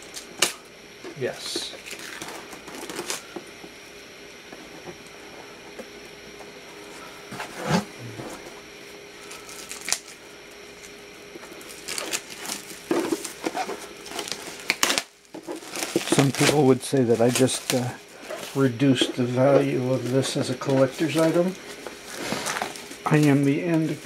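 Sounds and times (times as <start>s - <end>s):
plastic wrap rustling: 11.5s - 24.0s.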